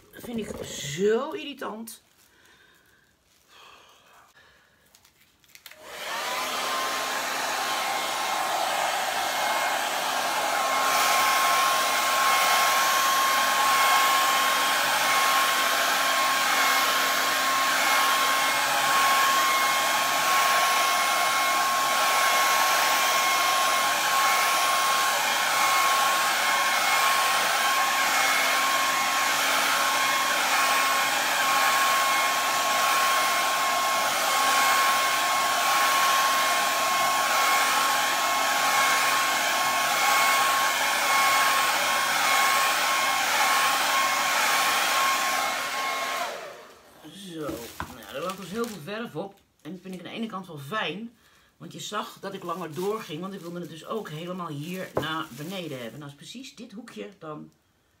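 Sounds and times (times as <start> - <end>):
hair dryer running: 0.2 - 1.2, 5.6 - 48.8, 52.4 - 55.7.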